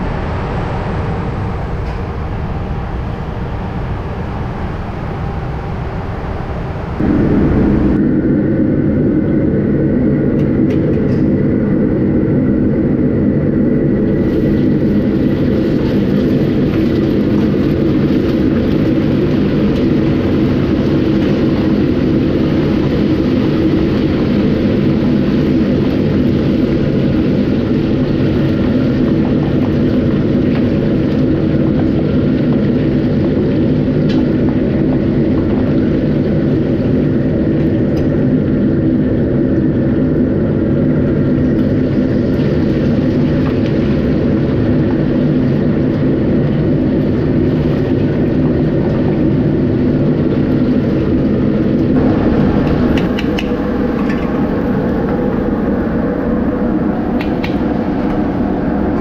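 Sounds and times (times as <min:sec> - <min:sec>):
loud low roar with hum: 0:00.0 - 0:59.0.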